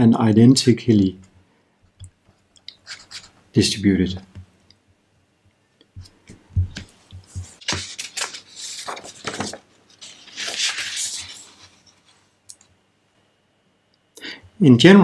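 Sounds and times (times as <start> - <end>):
paper rustling and sliding: 2.8 - 3.3, 6.7 - 12.4
paper knocks and thumps on desk: 6.0 - 9.7.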